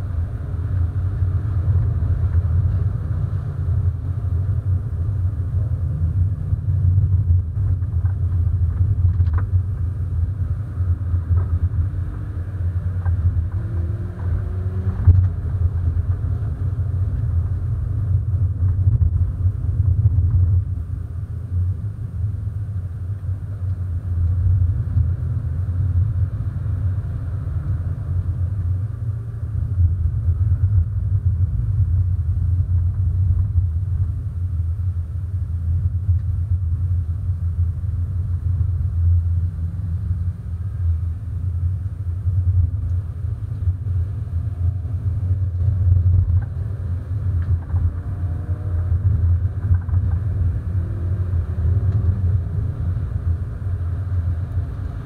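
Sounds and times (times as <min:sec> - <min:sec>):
car engine and road rumble: 0:00.0 - 0:55.0.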